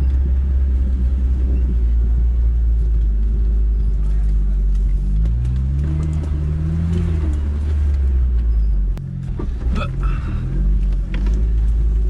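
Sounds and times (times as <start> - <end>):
engine rumbling at low speed: 0.0 - 12.0
car body clicks and rattles: 10.7 - 12.0.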